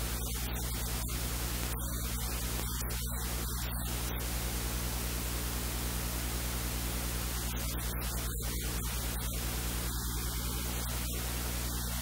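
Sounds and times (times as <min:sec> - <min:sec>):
low mains hum: 0:00.0 - 0:12.0
electrical hiss: 0:06.5 - 0:12.0.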